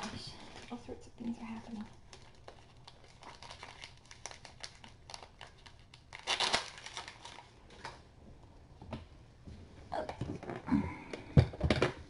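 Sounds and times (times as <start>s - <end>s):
crinkling and rustling: 0.0s - 8.1s.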